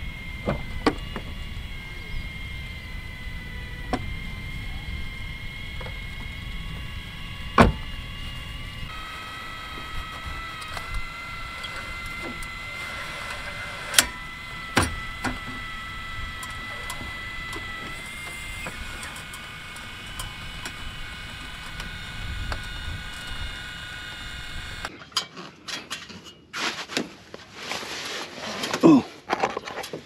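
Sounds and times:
electric motor whining: 0.0 - 24.9
sharp clicks: 13.2 - 24.9.

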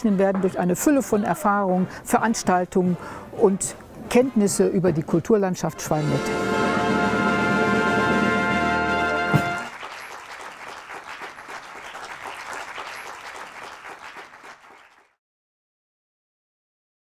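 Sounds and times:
big band final chord: 6.0 - 9.7
audience applause: 8.5 - 15.2.

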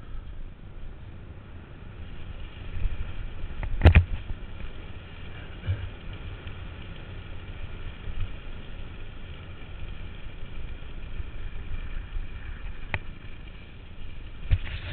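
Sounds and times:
bicycle tyres on asphalt: 0.0 - 14.9.

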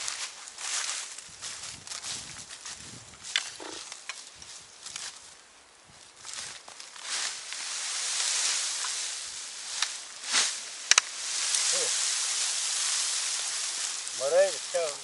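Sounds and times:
dry straw rustling: 0.0 - 15.0
sharp clicks: 10.9 - 11.1.

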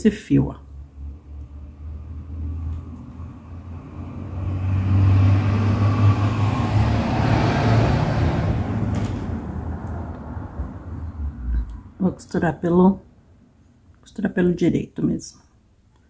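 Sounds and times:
vehicle engine hum and road noise: 0.6 - 12.1.

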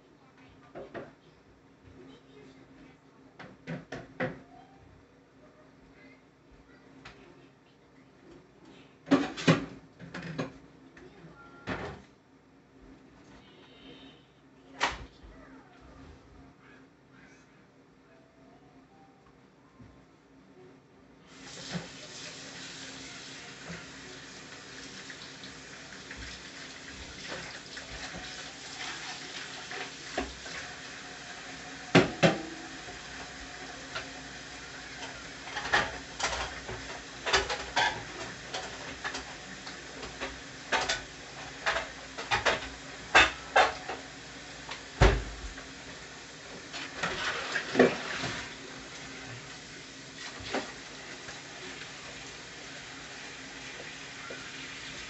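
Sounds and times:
pots and pans clinking: 31.9 - 44.1.

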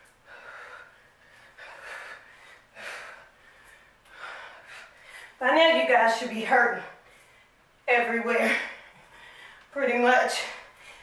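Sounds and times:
woman breathing hard: 0.0 - 5.4, 8.5 - 9.7.

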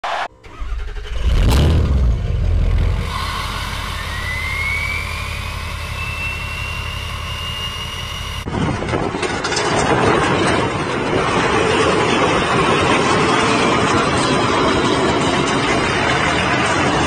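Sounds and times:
heavy engine rumbling: 0.3 - 17.0
rising whistle: 2.9 - 8.5.

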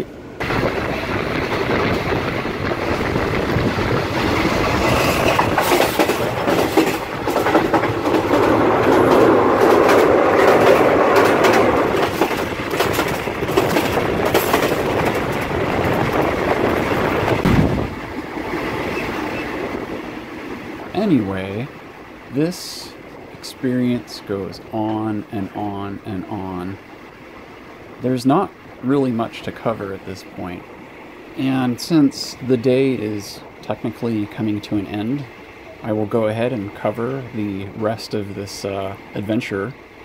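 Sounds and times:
train wheels rattling: 0.4 - 21.3.

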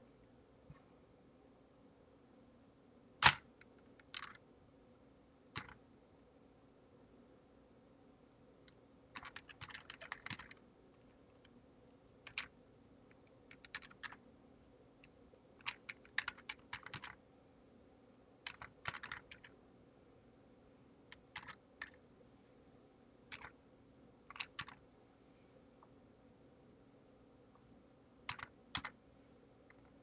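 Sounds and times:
typing on computer keyboard: 9.1 - 10.6, 12.3 - 12.5, 13.5 - 14.2, 15.6 - 17.2, 18.4 - 19.5, 21.1 - 22.0, 23.3 - 23.6, 24.3 - 24.8, 28.3 - 29.0.

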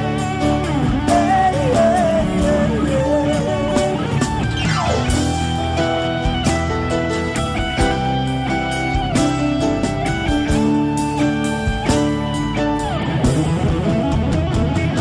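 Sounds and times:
band with guitar: 0.0 - 15.0
man singing: 1.0 - 4.3.

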